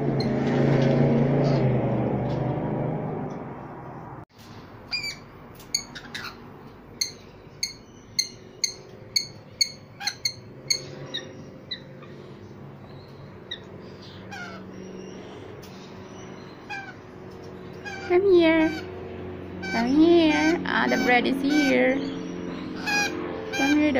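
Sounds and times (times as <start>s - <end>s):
lorikeets chirping: 4.9s - 23.9s.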